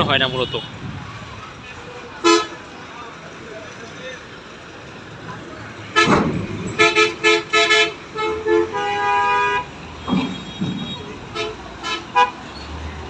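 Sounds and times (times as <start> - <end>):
vehicle horns honking: 0.2 - 0.8, 2.2 - 2.6, 5.9 - 12.7.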